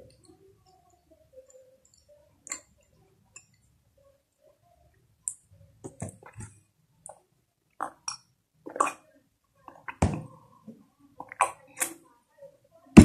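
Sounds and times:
person sipping and swallowing: 7.8 - 9.0.

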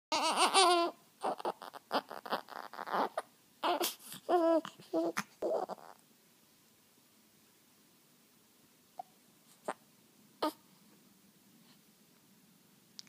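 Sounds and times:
newborn baby crying: 0.1 - 6.0, 10.4 - 10.6.

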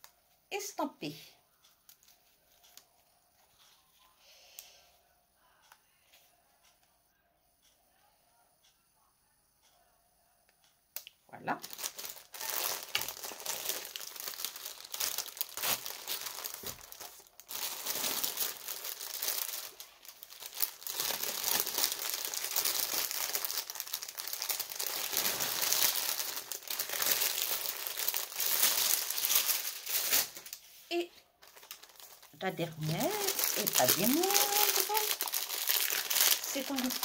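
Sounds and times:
plastic packaging crinkling: 11.5 - 30.8, 31.4 - 37.0.

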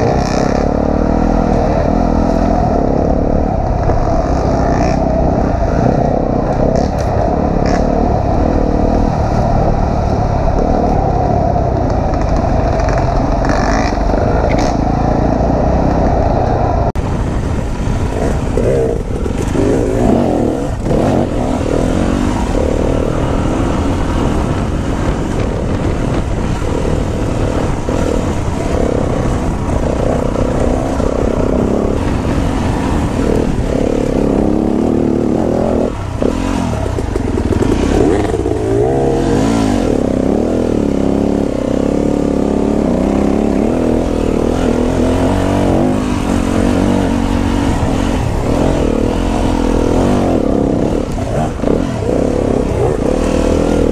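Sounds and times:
dirt bike engine revving: 0.0 - 16.9, 17.9 - 53.9.

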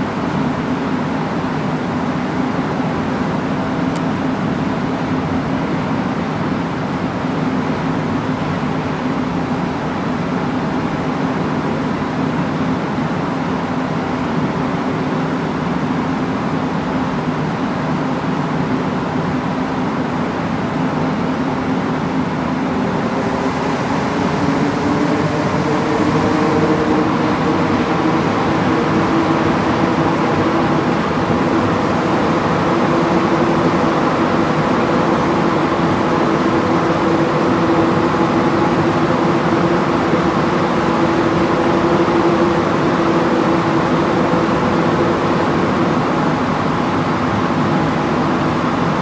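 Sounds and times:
train rumbling through tunnel: 0.0 - 49.0
faint motor hum: 15.6 - 49.0.

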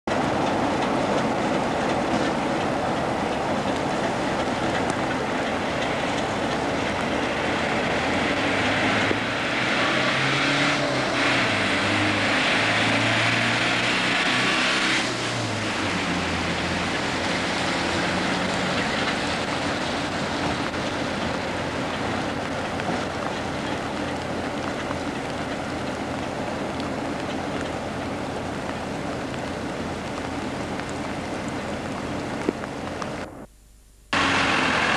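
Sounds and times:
diesel locomotive engine running: 0.1 - 33.3, 34.2 - 34.9
steady hiss: 33.1 - 34.3.

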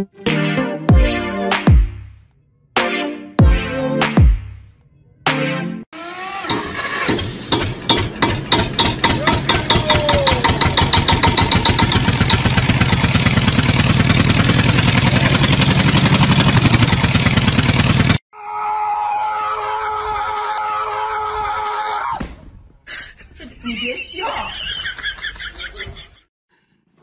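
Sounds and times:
engine revving up: 5.9 - 18.2.

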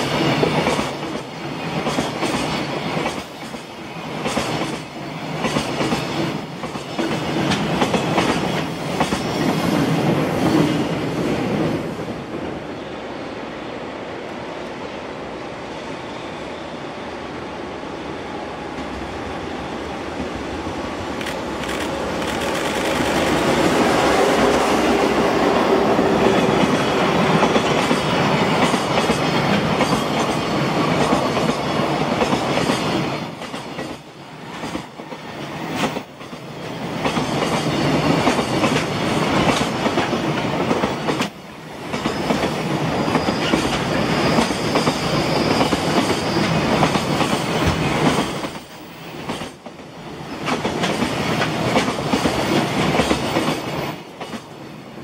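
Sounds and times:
freight train rumbling past: 0.0 - 55.0.

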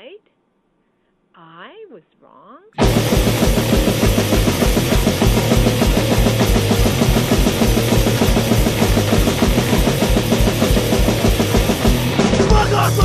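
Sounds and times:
punk band playing: 2.8 - 13.0.

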